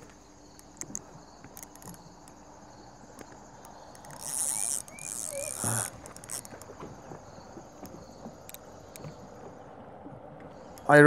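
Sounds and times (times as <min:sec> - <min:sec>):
fishing reel clicks: 0:03.6 - 0:06.5
fishing reel hissing buzz: 0:04.0 - 0:06.5.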